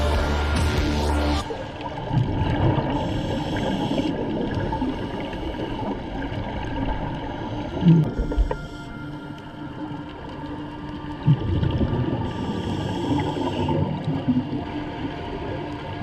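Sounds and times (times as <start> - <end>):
bubbles gurgling underwater: 1.6 - 8.6, 11.2 - 16.0.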